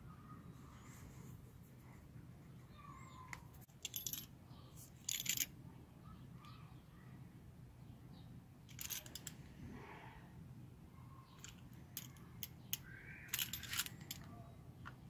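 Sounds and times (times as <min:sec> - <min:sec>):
light metallic clinking: 0:03.8 - 0:04.3, 0:08.7 - 0:09.4, 0:11.4 - 0:14.4.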